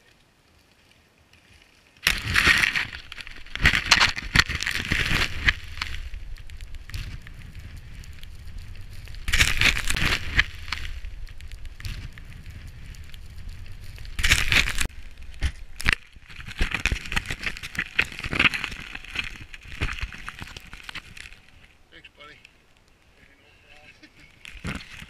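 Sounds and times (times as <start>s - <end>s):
wind rumbling on microphone: 2.0s - 21.9s.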